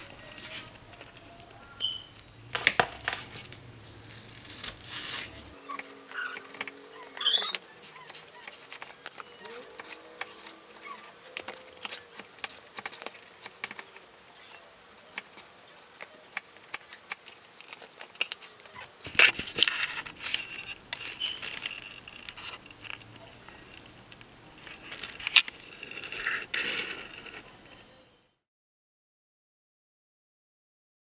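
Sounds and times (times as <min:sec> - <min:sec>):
crinkling handling noise: 0:02.2 - 0:27.6
knife cutting on paper plate: 0:04.4 - 0:14.4.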